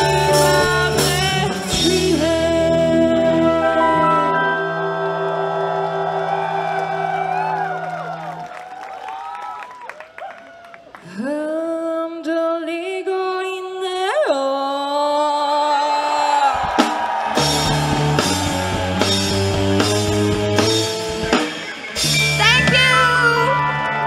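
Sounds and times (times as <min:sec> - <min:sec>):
rock band playing: 0:00.0 - 0:08.6, 0:16.6 - 0:24.0
drum hits: 0:16.6 - 0:23.0.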